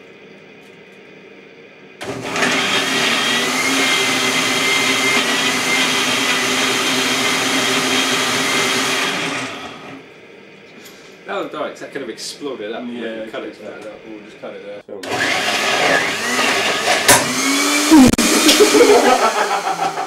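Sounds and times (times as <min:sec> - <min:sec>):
blender motor whining: 0:02.0 - 0:10.0, 0:15.0 - 0:20.0.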